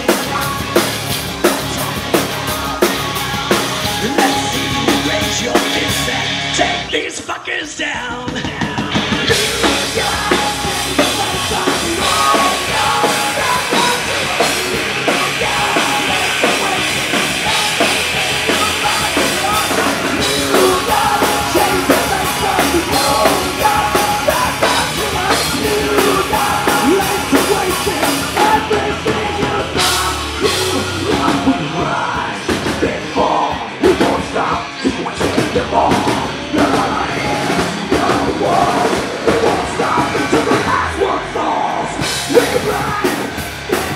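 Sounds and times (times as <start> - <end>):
drum kit: 0.0 - 7.1, 7.8 - 43.9
electric guitar: 0.0 - 7.1, 7.8 - 43.9
bass guitar: 0.0 - 43.9
man singing into a microphone: 0.0 - 43.9.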